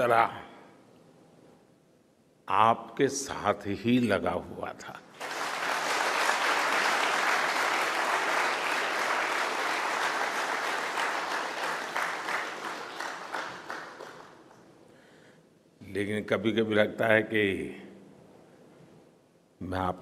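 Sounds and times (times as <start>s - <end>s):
audience applauding: 5.2s - 14.6s.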